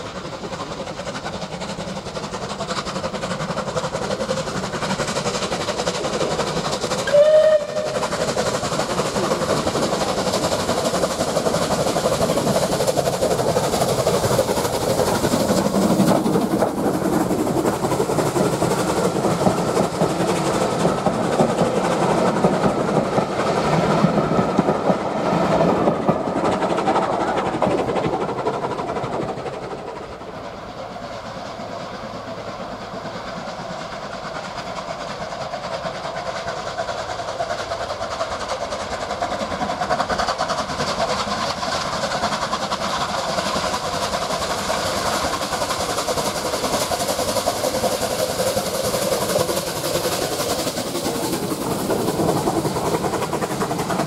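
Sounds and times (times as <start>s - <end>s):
steam train running: 0.0s - 54.0s
train whistle blast: 7.0s - 8.0s.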